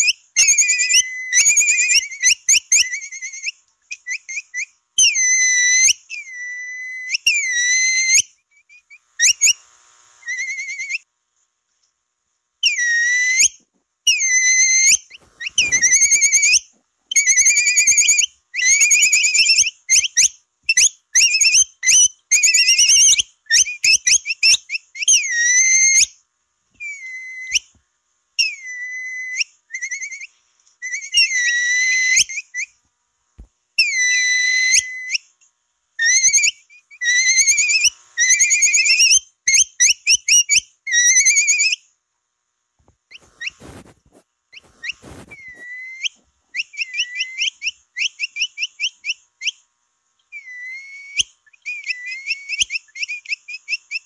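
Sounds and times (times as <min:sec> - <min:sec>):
high wavering whistle calls: 0:10.2 - 0:11.1, 0:12.6 - 0:26.2, 0:26.8 - 0:27.7, 0:36.0 - 0:41.8, 0:50.3 - 0:54.0.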